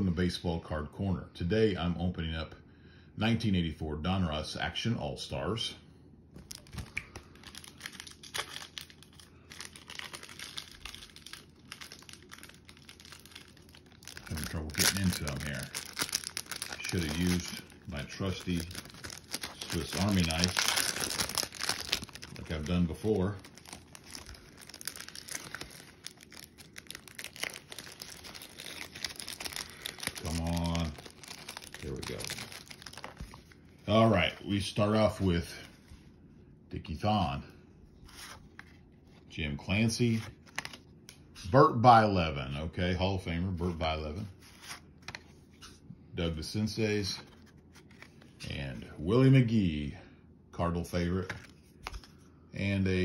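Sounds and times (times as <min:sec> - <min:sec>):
plastic wrapper crinkling and tearing: 0:06.4 - 0:34.5, 0:40.4 - 0:41.2.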